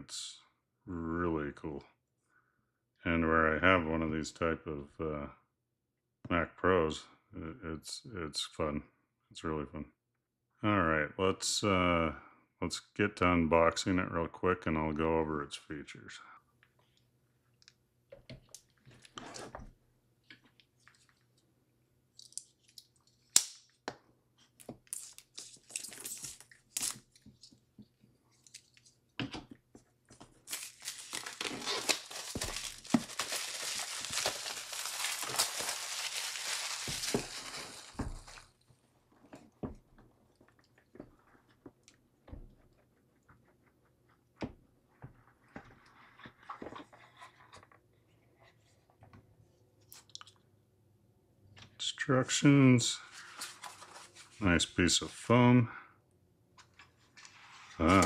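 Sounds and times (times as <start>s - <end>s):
plastic wrap crinkling: 30.3s - 38.6s.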